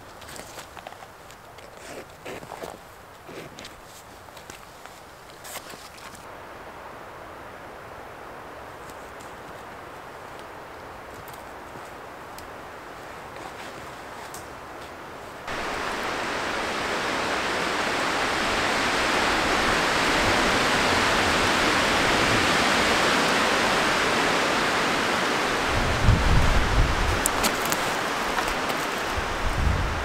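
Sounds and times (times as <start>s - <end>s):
wind rushing through treetops: 4.1s - 30.0s
wind buffeting microphone: 15.5s - 30.0s.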